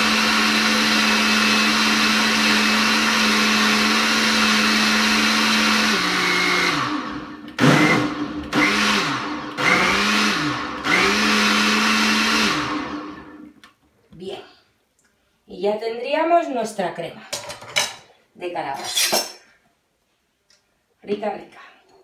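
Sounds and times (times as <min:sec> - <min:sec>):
blender motor running: 0:00.0 - 0:13.4.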